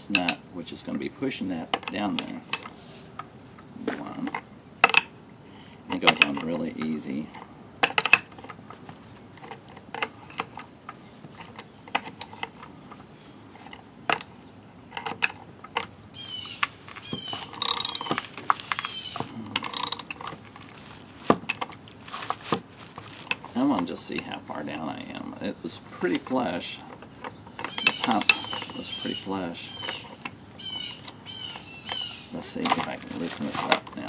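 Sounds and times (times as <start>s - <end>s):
wrench clinking on nut: 17.6s - 20.2s, 32.6s - 33.2s.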